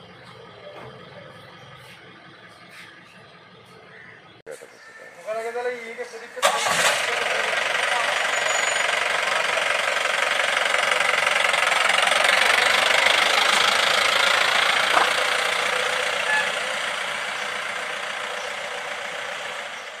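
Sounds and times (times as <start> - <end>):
jeep engine running: 0.0 - 4.4, 5.8 - 20.0.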